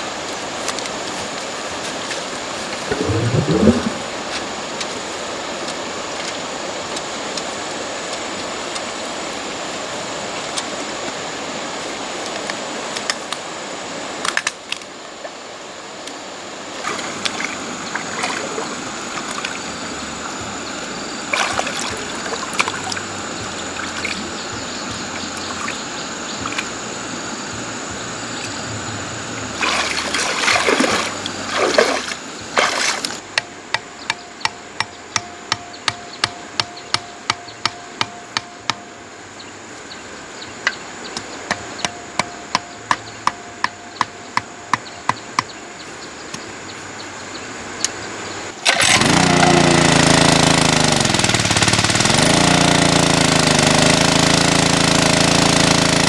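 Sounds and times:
water splashing: 0.0s - 6.1s, 16.6s - 27.0s, 29.3s - 33.3s, 48.6s - 49.8s
water trickling: 2.6s - 5.8s, 16.7s - 27.0s, 29.3s - 33.3s.

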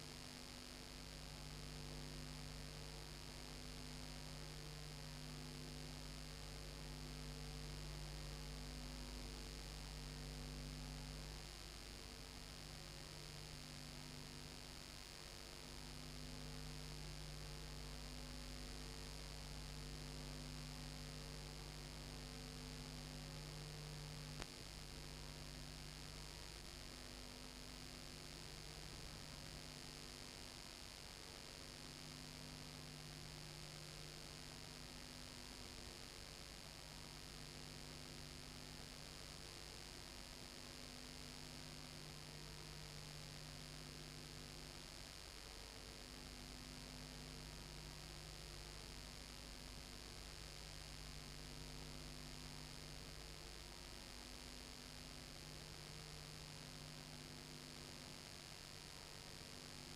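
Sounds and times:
electrical mains hum: 0.0s - 59.9s
faint click: 24.4s - 24.6s.

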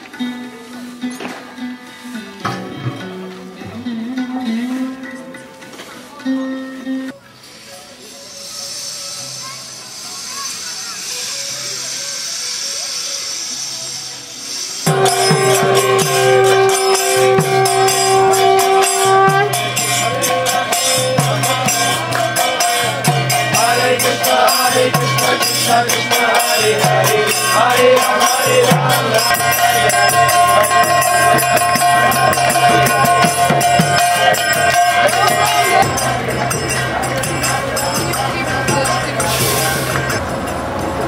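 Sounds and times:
hand cymbals clashing: 7.4s - 41.0s
held steady drone tones: 11.5s - 41.0s
voices chanting: 14.9s - 40.8s.

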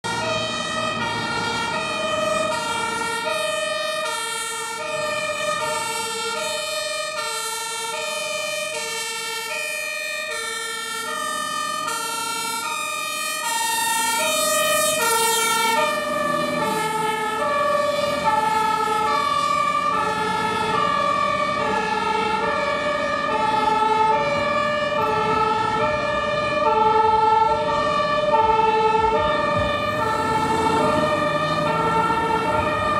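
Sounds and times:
road traffic: 0.0s - 32.9s
truck engine noise: 0.0s - 32.9s
two-tone fire engine sirens: 0.0s - 32.9s.

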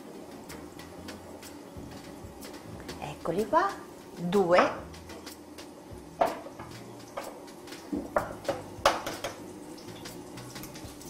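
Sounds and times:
eggshell tapping on ceramic bowl: 7.9s - 9.4s.

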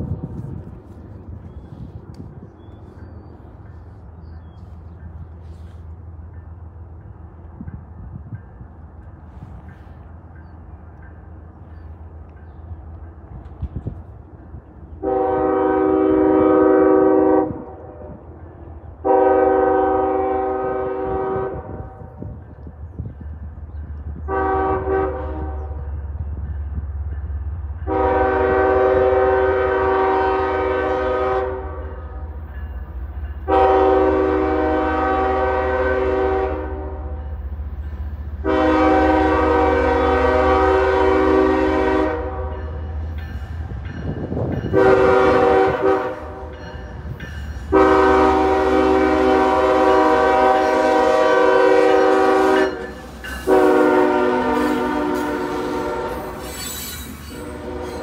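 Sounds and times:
train air horn blasts: 15.0s - 18.2s, 19.0s - 22.1s, 24.2s - 25.8s, 27.8s - 32.4s, 33.4s - 37.4s, 38.4s - 43.0s, 44.6s - 46.7s, 47.6s - 58.0s.

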